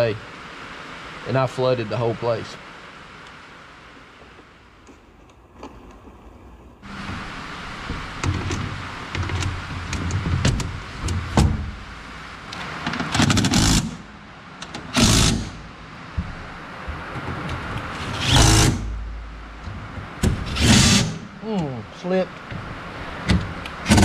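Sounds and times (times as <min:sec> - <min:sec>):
knocks and clicks of metal panel: 0:07.9 - 0:11.8, 0:19.6 - 0:21.0.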